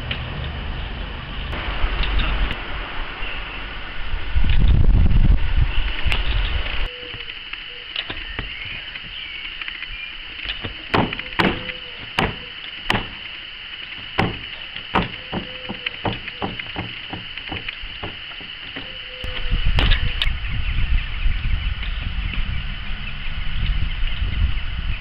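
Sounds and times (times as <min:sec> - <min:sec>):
unicycle wheel knocking on wood: 0:10.6 - 0:13.3, 0:13.9 - 0:19.2.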